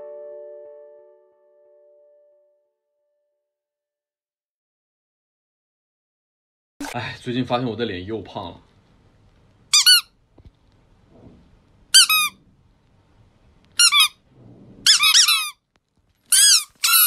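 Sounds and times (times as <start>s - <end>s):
squeaky toy squeaking: 9.7s - 10.1s, 11.9s - 12.4s, 13.8s - 14.2s, 14.8s - 15.6s, 16.3s - 17.0s.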